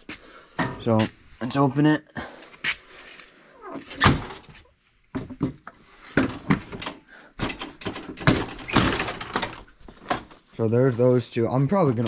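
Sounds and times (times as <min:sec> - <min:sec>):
ramp knocks and clatter: 0:05.2 - 0:10.3.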